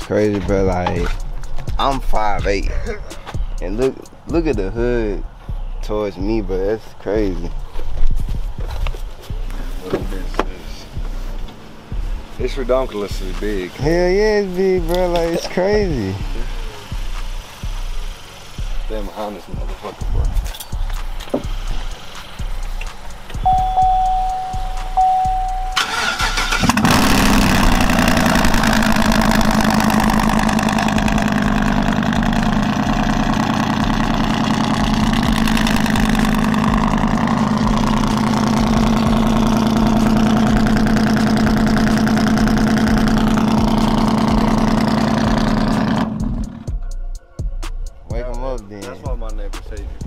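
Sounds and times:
engine cranking and idling: 0:00.0 - 0:47.0
high beep: 0:23.4 - 0:25.9.

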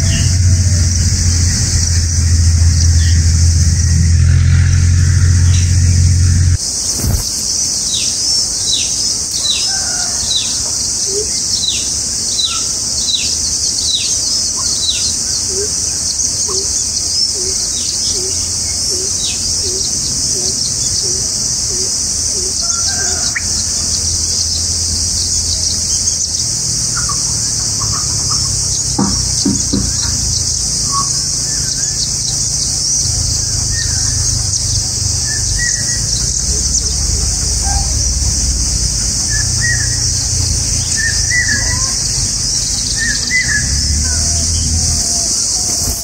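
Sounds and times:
high-pitched insect drone: 0:00.0 - 0:08.0, 0:14.6 - 0:46.0
bird chirps: 0:00.0 - 0:09.8, 0:22.6 - 0:46.0
steady high-pitched hiss: 0:00.0 - 0:46.0.

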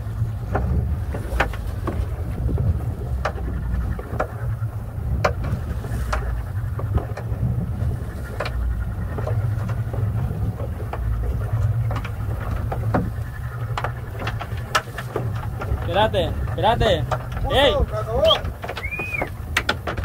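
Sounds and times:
outboard motor running: 0:00.0 - 0:20.0
wind: 0:00.0 - 0:20.0
light knocks and clicks: 0:10.6 - 0:17.5.

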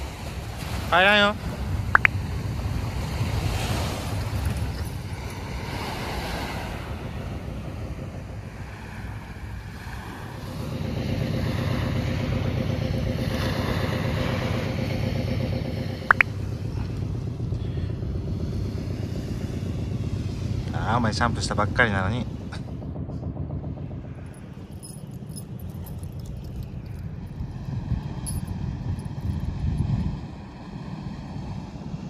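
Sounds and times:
surf rushing: 0:00.0 - 0:12.5
engine hum: 0:00.0 - 0:32.0
wind on microphone: 0:26.8 - 0:32.0.

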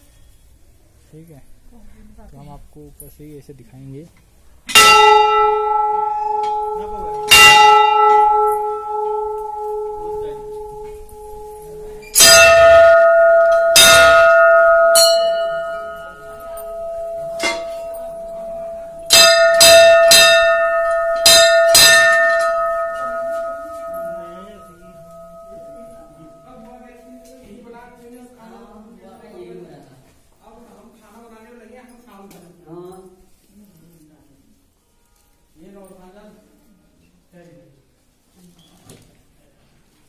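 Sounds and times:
low-pitched temple bell ringing: 0:04.7 - 0:28.0
high-pitched bell strokes: 0:04.8 - 0:27.5.

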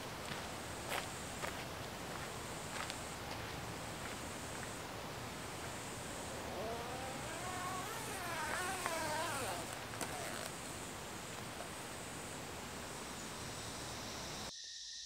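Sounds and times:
distant vehicle engine revving: 0:03.6 - 0:13.4.

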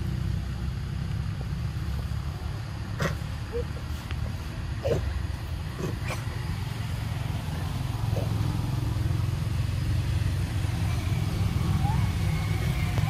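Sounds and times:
engine rumbling: 0:00.0 - 0:13.0.

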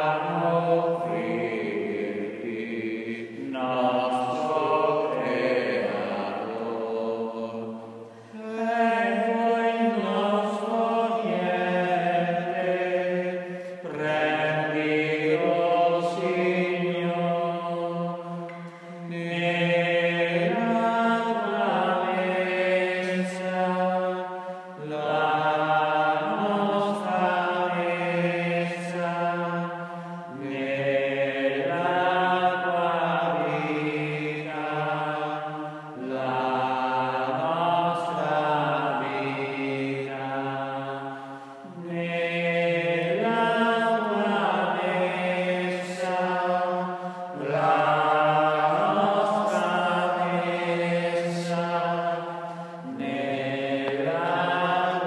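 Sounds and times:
slow chanted hymn: 0:00.0 - 0:55.0.

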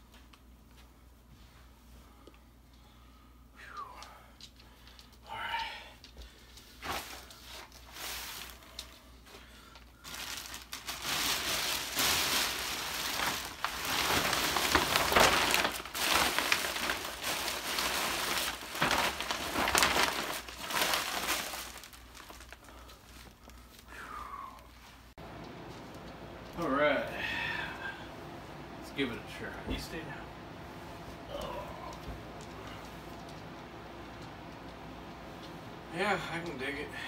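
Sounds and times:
plastic wrapping crinkling: 0:06.6 - 0:26.6.

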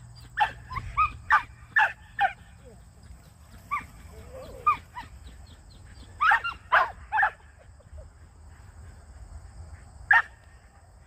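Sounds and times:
dog barking: 0:00.4 - 0:02.6, 0:06.2 - 0:07.4, 0:10.1 - 0:10.4.

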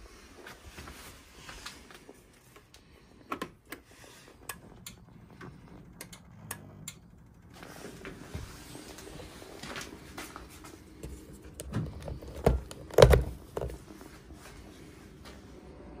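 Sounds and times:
gas boiler clicks and ticks: 0:02.6 - 0:07.3
low hum: 0:02.7 - 0:16.0.

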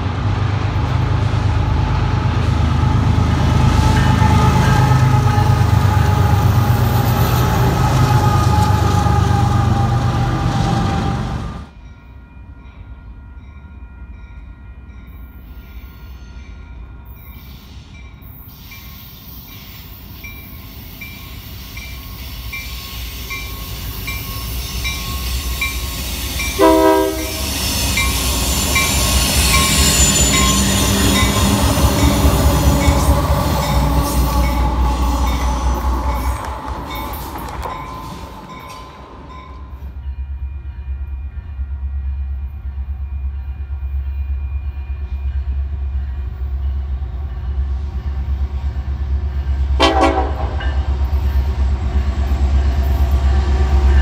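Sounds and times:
diesel locomotives rumbling: 0:00.0 - 0:54.0
locomotive horn blast: 0:26.5 - 0:27.6, 0:49.8 - 0:50.8.

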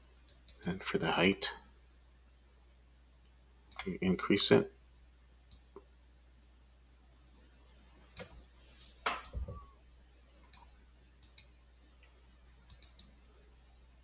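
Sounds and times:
computer mouse clicking: 0:10.5 - 0:11.6, 0:12.6 - 0:13.2.

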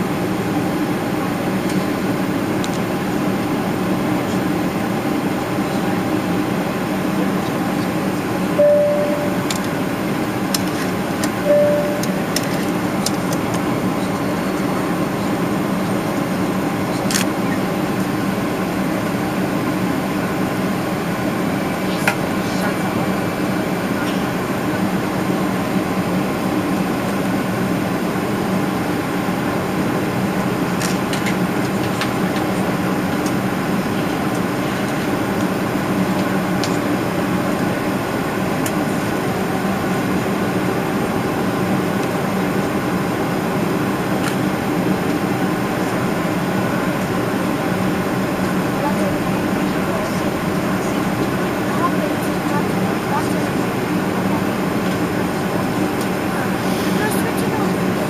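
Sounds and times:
jet engine drone: 0:00.0 - 0:58.0
short single tones: 0:08.6 - 0:09.5, 0:11.4 - 0:12.3.

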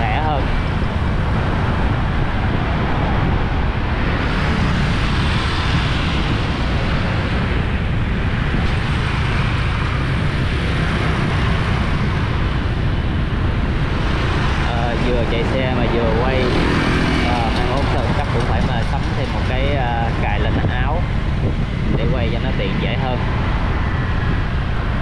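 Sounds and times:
city street traffic rumble: 0:00.0 - 0:25.0.

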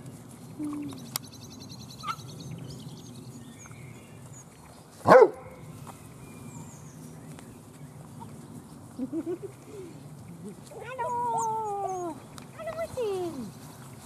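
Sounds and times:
dog barking: 0:05.1 - 0:05.6
small scuffling noises: 0:07.0 - 0:14.0.

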